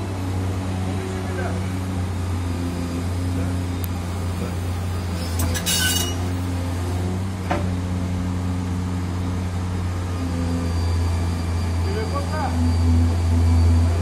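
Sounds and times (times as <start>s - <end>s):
excavator diesel engine drone: 0.0s - 14.0s.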